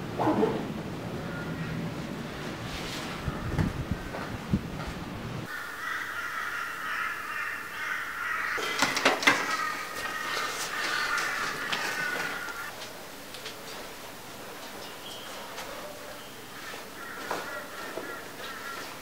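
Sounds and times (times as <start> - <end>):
crows cawing: 1.2 - 1.8, 5.5 - 12.7, 16.5 - 19.0.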